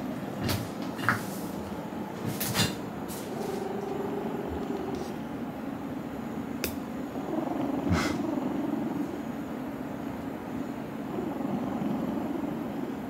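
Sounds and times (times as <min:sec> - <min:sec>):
cat purring: 0:00.0 - 0:13.0
sharp click: 0:06.6 - 0:06.8.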